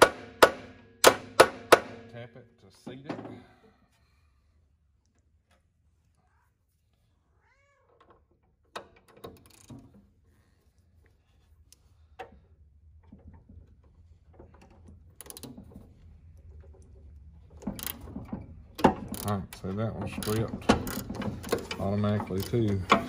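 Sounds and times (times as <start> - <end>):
hand ratchet clicking: 9.1 - 9.7, 15.2 - 15.6, 17.6 - 23.0.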